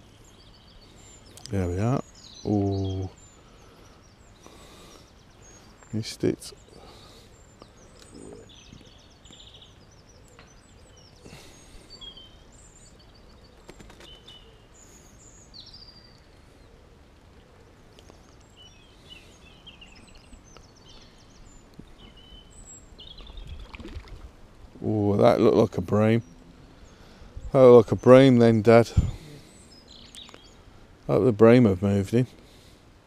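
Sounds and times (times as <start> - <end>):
low outdoor background noise: 0.0 - 33.0
songbirds chirping and trilling: 0.0 - 33.0.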